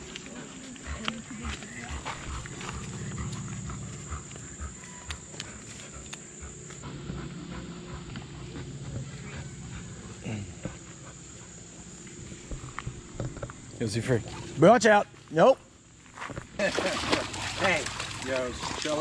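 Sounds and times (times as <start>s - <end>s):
dog low drawn-out vocalizing: 0.0s - 14.6s, 17.0s - 19.0s.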